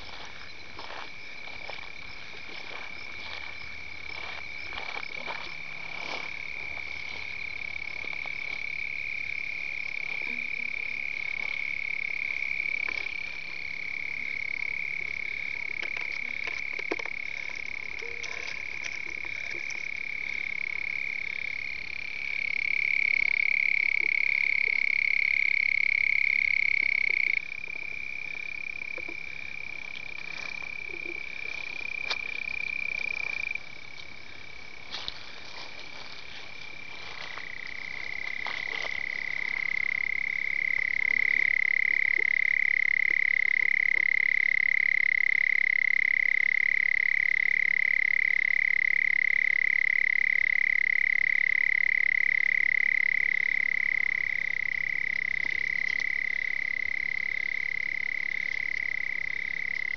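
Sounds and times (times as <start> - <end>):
faint clicks and rustles: 15.1 - 20.0.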